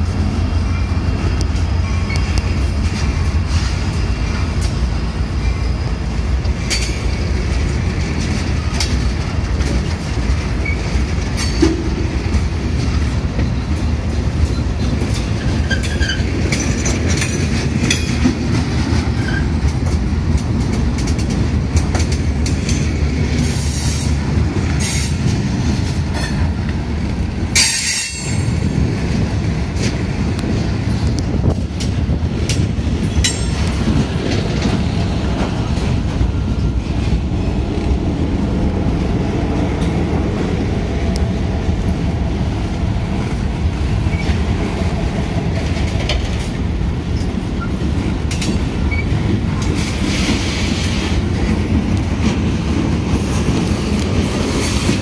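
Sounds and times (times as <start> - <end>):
freight train rumble: 0.0 - 55.0
high wheel squeals: 15.4 - 16.4.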